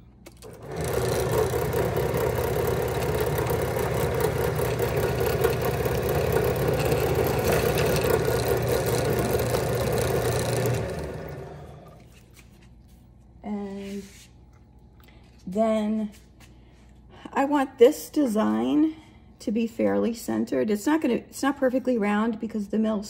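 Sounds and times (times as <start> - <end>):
drill press motor running: 0.2 - 12.1
drill bit drilling metal sheet: 0.6 - 11.8.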